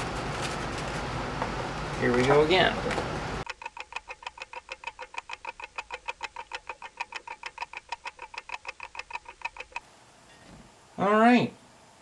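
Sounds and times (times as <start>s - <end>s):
rapid clock ticking: 3.4s - 9.8s.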